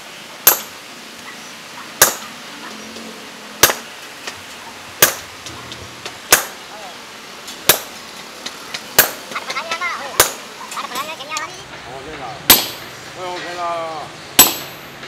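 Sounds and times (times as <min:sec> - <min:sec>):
sledgehammer striking chisel on steel: 0:00.4 - 0:00.8, 0:02.0 - 0:02.3, 0:03.6 - 0:03.9, 0:05.0 - 0:05.3, 0:06.3 - 0:06.6, 0:07.6 - 0:08.0, 0:09.0 - 0:09.2, 0:10.2 - 0:10.4, 0:12.5 - 0:12.9, 0:14.4 - 0:15.0.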